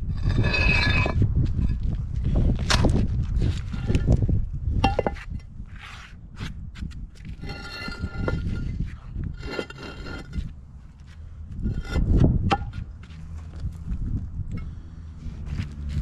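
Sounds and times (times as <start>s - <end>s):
block scraping on gravel: 0.0s - 13.9s
wind rumble on microphone: 0.0s - 16.0s
concrete blocks knocking: 0.2s - 1.8s, 4.8s - 5.5s, 7.3s - 10.4s, 11.6s - 12.9s.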